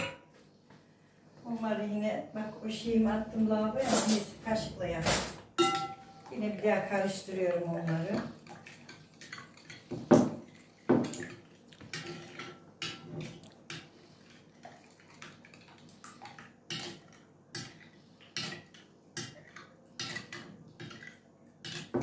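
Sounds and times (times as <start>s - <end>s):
metal spoon clinking glass bowl: 5.6s - 6.3s.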